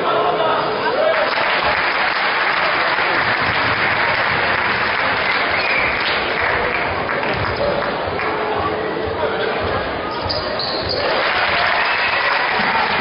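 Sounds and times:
crowd applauding: 0:00.9 - 0:08.7, 0:11.0 - 0:13.0.

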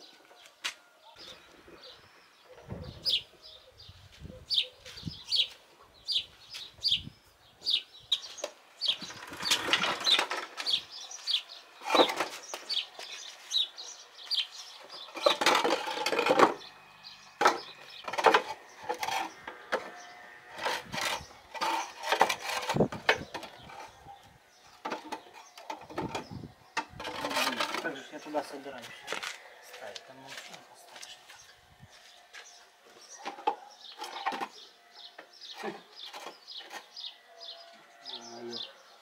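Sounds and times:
bird chirping: 0:00.0 - 0:28.8, 0:29.4 - 0:39.0
wooden blocks knocking and scraping: 0:08.4 - 0:10.8, 0:11.8 - 0:13.2, 0:14.8 - 0:16.6, 0:17.4 - 0:19.9, 0:20.6 - 0:24.0, 0:24.8 - 0:28.0, 0:33.1 - 0:34.6.

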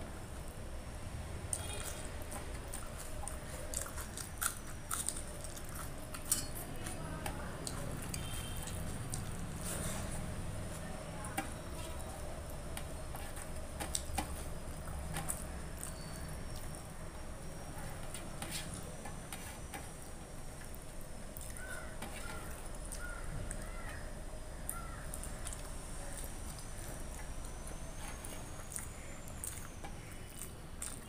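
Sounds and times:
chewing with wet mouth clicks: 0:01.5 - 0:07.0, 0:07.6 - 0:09.7, 0:12.6 - 0:19.2, 0:20.5 - 0:23.8, 0:24.7 - 0:31.0.

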